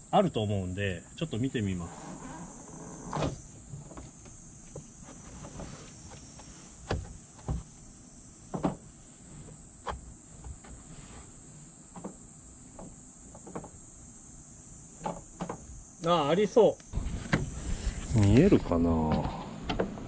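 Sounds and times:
faint high hiss: 0.0s - 20.0s
soft knocks and creaks: 11.9s - 13.8s.

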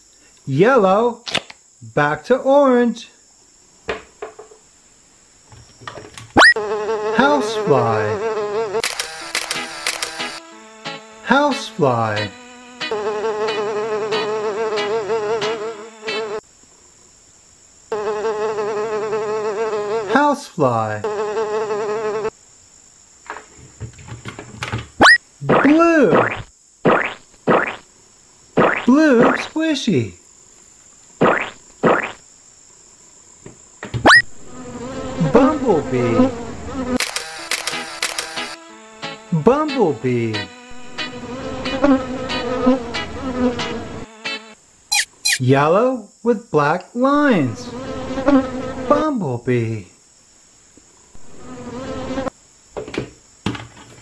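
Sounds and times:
fly buzzing: 6.3s - 11.3s, 12.0s - 16.5s, 17.8s - 22.4s, 25.0s - 29.6s, 30.5s - 32.4s, 34.0s - 39.5s, 40.4s - 45.5s, 47.2s - 49.0s, 51.1s - 52.4s
rising whistle: 34.1s - 34.3s.

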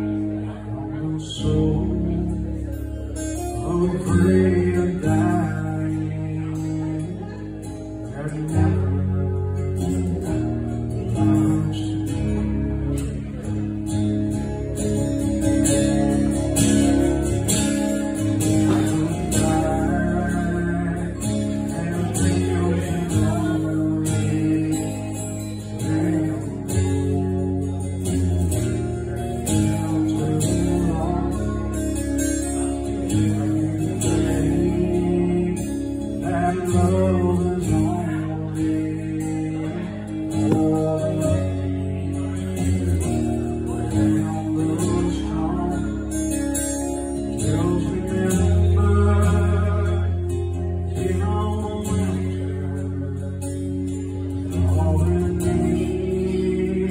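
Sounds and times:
man singing: 0.0s - 13.9s, 14.7s - 56.9s
acoustic guitar strumming: 0.0s - 56.9s.

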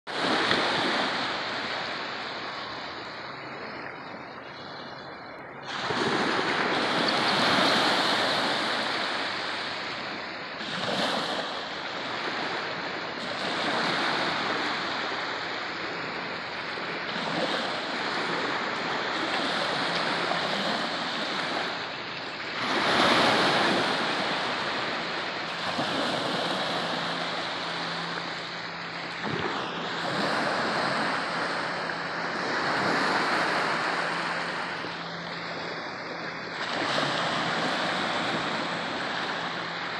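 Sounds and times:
small waves breaking on beach: 0.1s - 39.9s.

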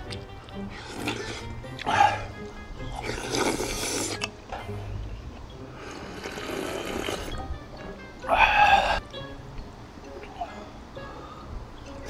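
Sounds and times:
background music: 0.0s - 12.0s
person slurping soup: 0.5s - 2.3s, 2.9s - 4.8s, 5.7s - 7.4s.

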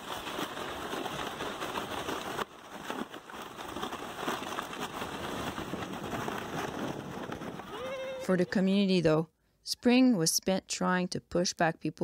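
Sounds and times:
sleds scraping over snow: 0.0s - 8.8s.

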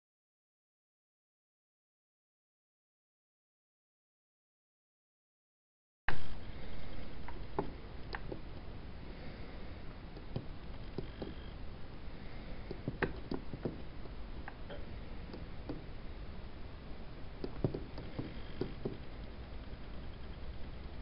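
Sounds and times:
low background hum: 6.1s - 21.0s.

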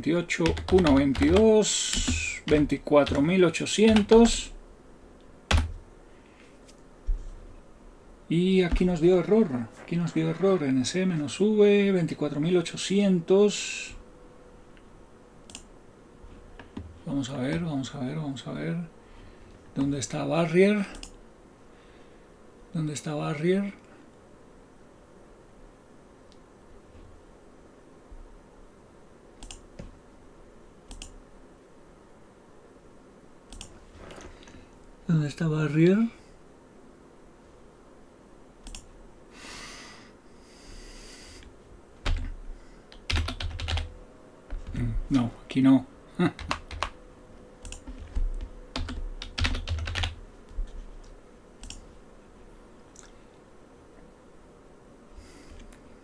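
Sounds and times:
computer mouse clicking: 0.4s - 4.4s, 15.4s - 15.7s, 20.9s - 21.2s, 29.4s - 29.9s, 30.9s - 31.2s, 33.5s - 33.8s, 38.6s - 38.9s, 47.6s - 50.1s, 51.6s - 51.8s.

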